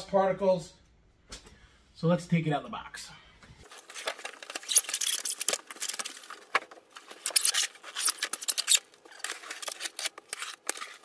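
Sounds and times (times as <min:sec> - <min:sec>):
packaging rustling and crinkling: 0:03.6 - 0:11.0.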